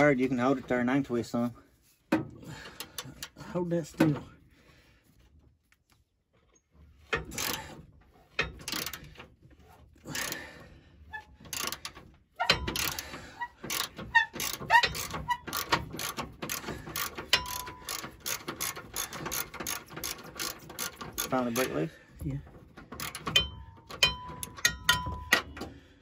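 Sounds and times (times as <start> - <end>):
ratchet wrench clicking: 7.2 - 7.8, 8.4 - 9.2, 11.5 - 21.8, 22.9 - 25.6
short squeaks: 11.0 - 21.7.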